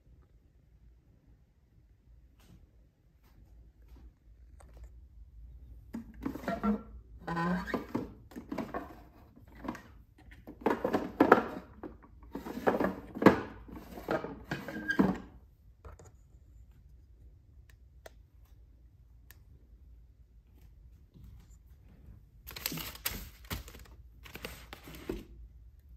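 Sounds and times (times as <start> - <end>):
plastic drawers sliding: 6.2 - 15.4.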